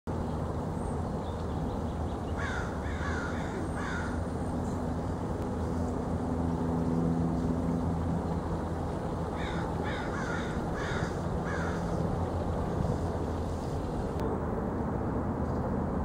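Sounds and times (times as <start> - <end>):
steady low hum: 0.1 - 16.0
crow cawing: 2.4 - 4.2, 9.4 - 12.0.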